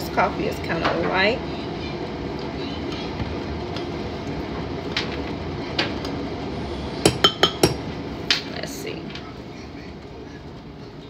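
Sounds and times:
spoon clinking against glass: 7.1s - 7.8s.

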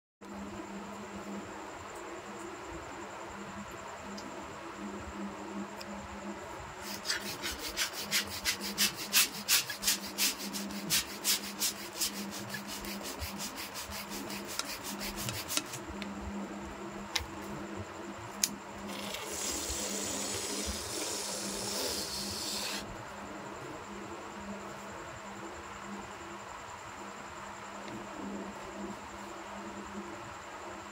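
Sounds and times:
air hissing out of balloon: 6.8s - 15.8s, 18.9s - 22.9s
balloon being pumped up: 18.9s - 22.8s.

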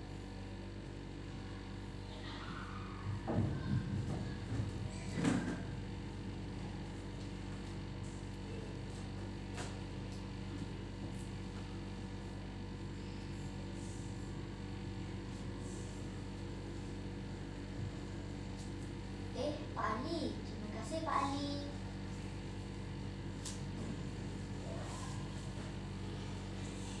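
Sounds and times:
electrical mains hum: 0.0s - 27.0s.

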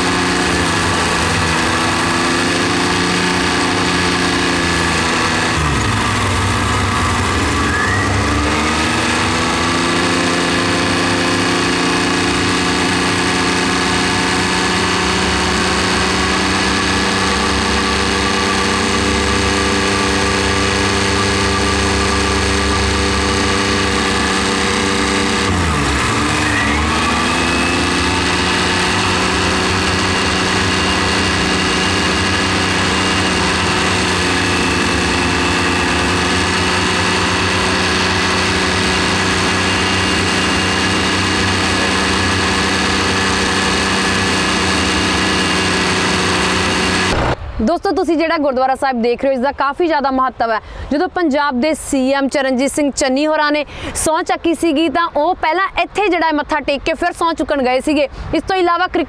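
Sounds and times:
tractor diesel engine running: 0.0s - 47.8s.

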